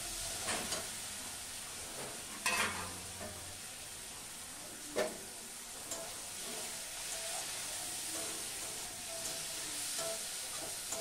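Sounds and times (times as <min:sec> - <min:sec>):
vegetables sizzling in a pan: 0:00.0 - 0:11.0
spatula scraping a pan: 0:02.0 - 0:03.0.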